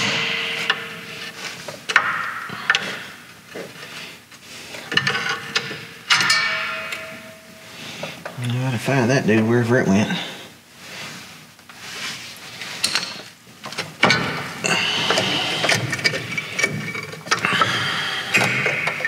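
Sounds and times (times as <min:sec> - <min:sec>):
metal clicks and knocks: 0:04.9 - 0:07.4, 0:12.8 - 0:19.0.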